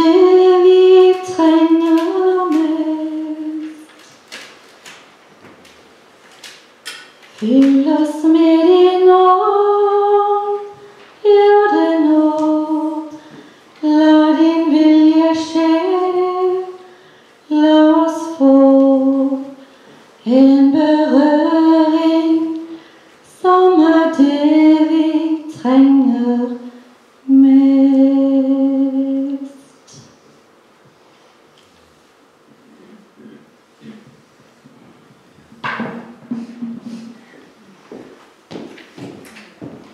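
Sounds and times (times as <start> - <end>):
woman singing unaccompanied: 0.0 - 4.1, 7.4 - 19.6, 20.2 - 30.1.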